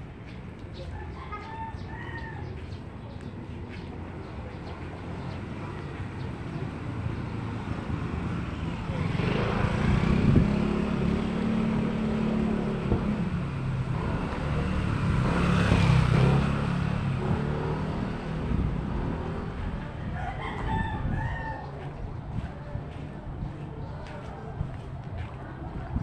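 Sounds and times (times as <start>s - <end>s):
vehicle engine drone: 3.4s - 20.4s.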